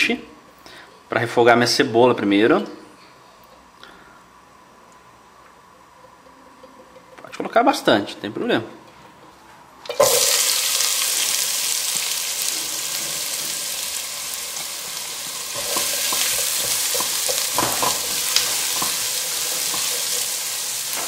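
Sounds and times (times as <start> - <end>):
onion sizzling in hot oil: 9.9 - 21.0
spatula scraping and knocking pan: 15.2 - 21.0.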